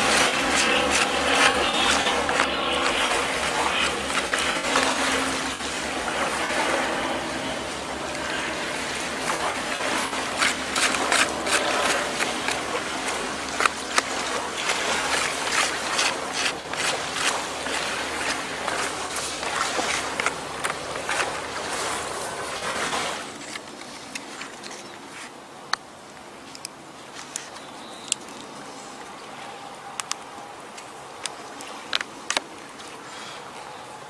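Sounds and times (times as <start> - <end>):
small water splashes: 0.0 - 24.6
water sloshing and trickling: 0.0 - 25.4, 26.3 - 34.0.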